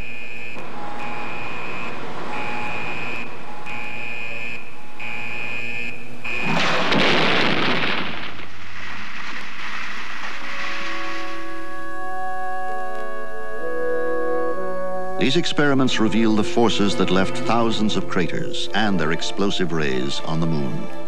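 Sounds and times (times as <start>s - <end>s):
gas gun firing blast: 6.3s - 9.6s.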